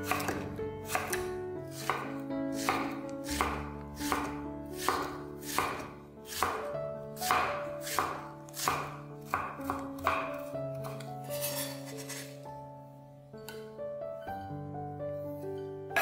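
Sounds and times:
knife chopping on cutting board: 0:00.0 - 0:12.3
soft background music: 0:00.0 - 0:16.0.

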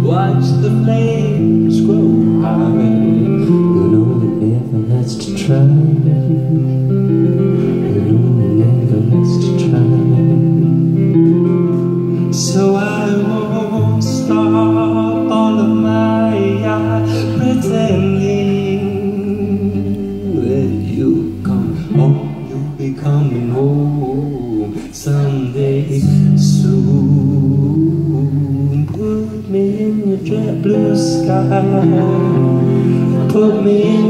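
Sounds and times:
electric guitar chords: 0:00.0 - 0:34.0
man singing: 0:00.0 - 0:34.0.

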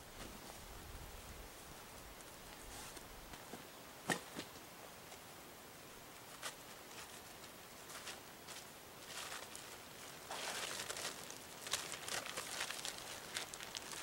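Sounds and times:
tarp crinkling and rustling: 0:06.3 - 0:14.0.

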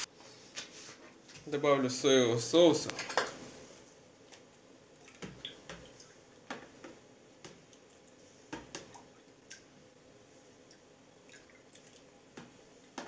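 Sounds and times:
faint liquid sounds: 0:04.9 - 0:13.0.

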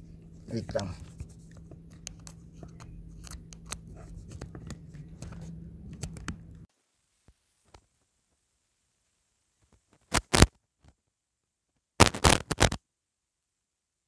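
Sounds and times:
steady low hum: 0:00.0 - 0:06.7.

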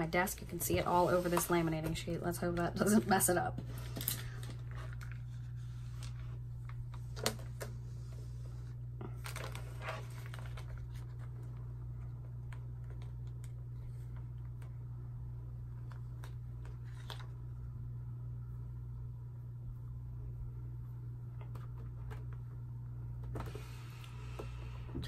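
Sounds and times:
steady low hum: 0:00.0 - 0:25.0
plastic pouch and paper rustling: 0:09.1 - 0:14.7.

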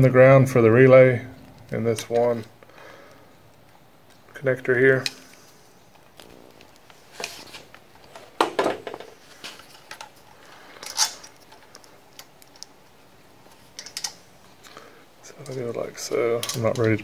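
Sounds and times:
small clicks and metallic rattles: 0:13.4 - 0:14.7, 0:15.3 - 0:17.0.

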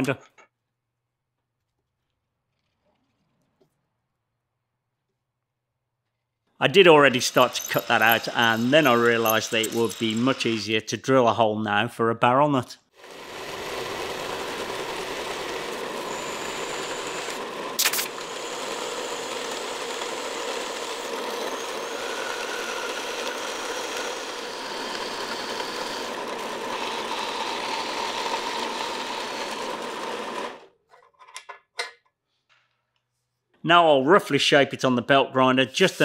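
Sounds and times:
bandsaw cutting metal: 0:06.7 - 0:11.0, 0:13.0 - 0:30.7
sharp click: 0:17.8 - 0:18.1.

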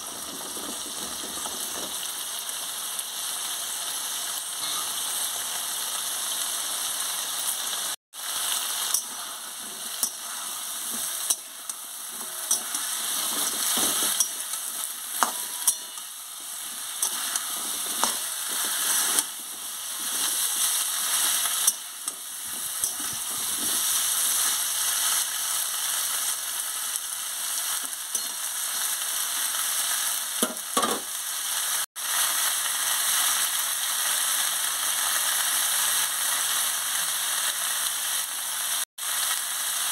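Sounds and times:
vegetables sizzling in oil: 0:00.0 - 0:39.9
spatula scraping a pan: 0:08.8 - 0:25.2.

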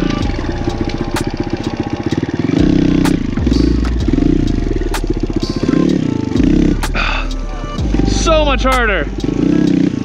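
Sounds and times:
dirt bike engine revving: 0:00.0 - 0:10.0.

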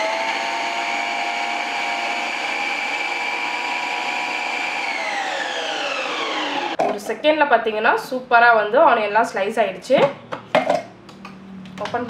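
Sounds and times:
mixer grinder motor whining: 0:00.0 - 0:06.8.

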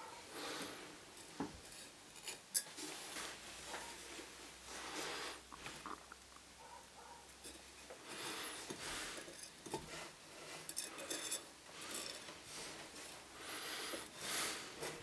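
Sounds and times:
wire scraping on soldering brick: 0:07.4 - 0:13.2.

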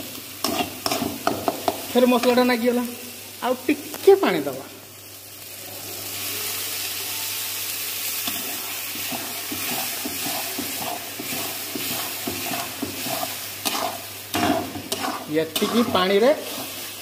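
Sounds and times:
frying sizzle: 0:00.0 - 0:17.0
ladle scraping pan: 0:09.1 - 0:16.8.

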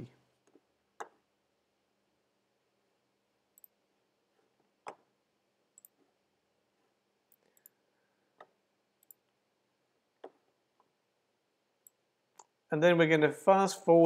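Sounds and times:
computer mouse clicks: 0:03.5 - 0:03.8, 0:05.7 - 0:06.1, 0:07.3 - 0:09.4, 0:11.8 - 0:12.6.

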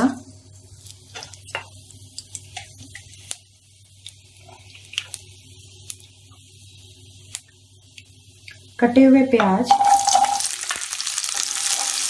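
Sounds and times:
oil sizzling: 0:00.4 - 0:08.8, 0:09.4 - 0:12.0
seeds popping in hot oil: 0:09.4 - 0:12.0.

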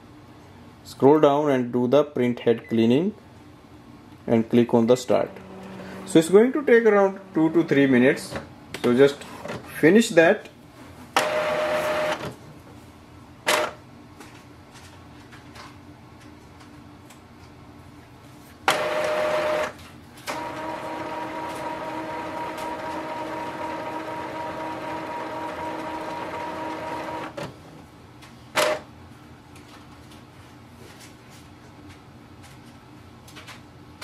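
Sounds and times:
printer motors whirring: 0:05.1 - 0:08.4, 0:11.2 - 0:12.3, 0:18.7 - 0:27.5.

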